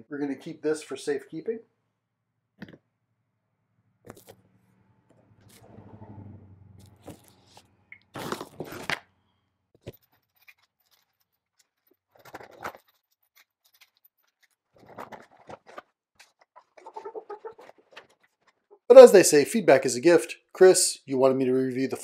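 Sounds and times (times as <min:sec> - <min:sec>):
cardboard and foam rustling: 0:14.3 - 0:16.7.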